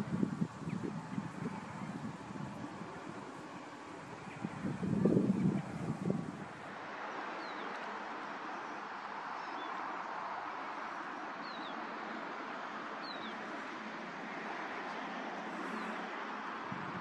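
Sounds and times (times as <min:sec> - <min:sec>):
outdoor background hiss: 0:00.0 - 0:17.0
small birds calling: 0:13.0 - 0:13.5.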